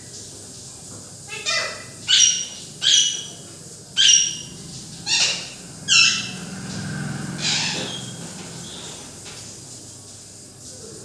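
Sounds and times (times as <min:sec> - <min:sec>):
parakeets squawking: 0:01.3 - 0:09.4.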